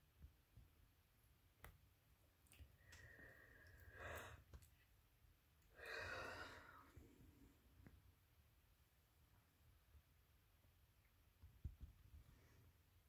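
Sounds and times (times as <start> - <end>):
soft breathy sighs: 2.5 - 4.8, 5.7 - 7.6.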